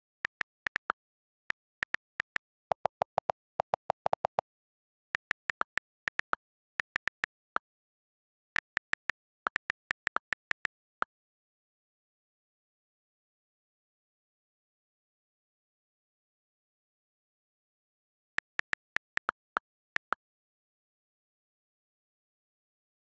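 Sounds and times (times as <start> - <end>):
on-screen keyboard clicks: 0.0 - 4.5, 5.1 - 7.6, 8.6 - 10.8, 18.4 - 20.2.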